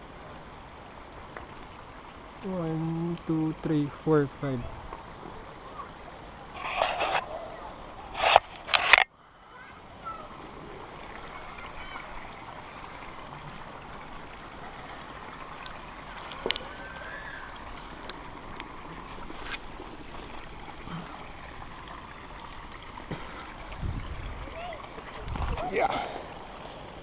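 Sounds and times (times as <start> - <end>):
hands scraping tree bark: 6.6 - 7.3, 8.2 - 9.1, 19.2 - 20.4.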